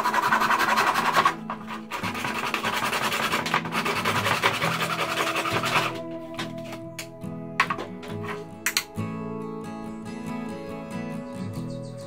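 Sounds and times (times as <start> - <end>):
saw cutting plastic pipe: 0.0 - 6.7
acoustic guitar music: 0.0 - 12.0.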